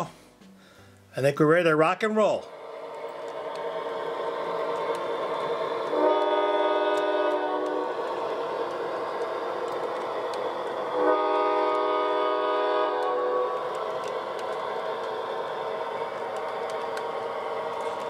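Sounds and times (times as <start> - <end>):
model train running noise: 2.1 - 18.0
wheels clicking on track: 2.5 - 18.0
train horn blast: 5.8 - 8.4, 10.9 - 14.2.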